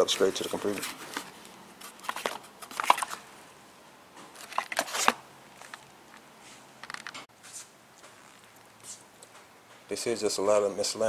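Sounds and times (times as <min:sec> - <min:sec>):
cardboard box rustling: 0:00.2 - 0:03.2, 0:04.3 - 0:05.7
plastic packaging crinkling: 0:00.4 - 0:03.2, 0:04.3 - 0:05.9.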